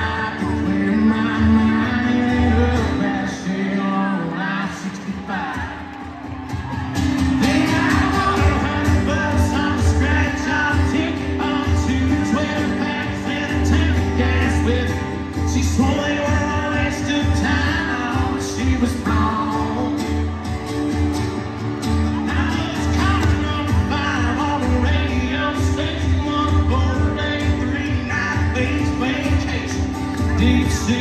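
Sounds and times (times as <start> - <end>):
man singing country song: 0.0 - 6.2, 7.0 - 31.0
acoustic guitar: 0.0 - 31.0.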